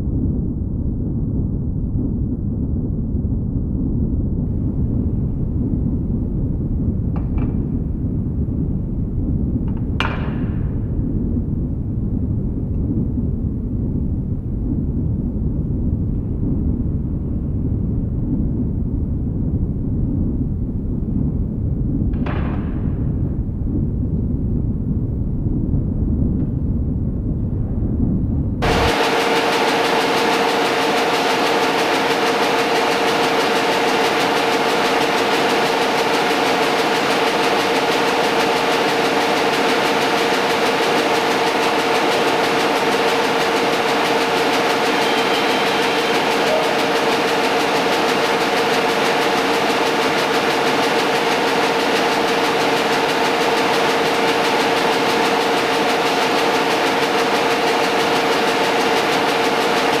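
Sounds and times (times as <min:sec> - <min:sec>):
printing press mechanical drone: 0:28.6 - 1:00.0.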